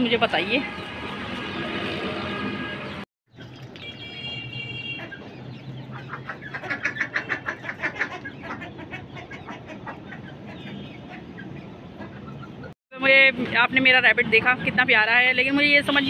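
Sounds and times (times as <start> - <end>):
chickens clucking: 5.0 - 12.8.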